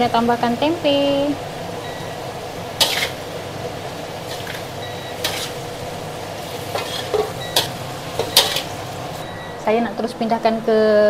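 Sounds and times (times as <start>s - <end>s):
vegetables sizzling in a wok: 0.0s - 10.3s
spatula scraping a pan: 2.8s - 3.3s, 4.2s - 5.7s, 6.4s - 8.8s.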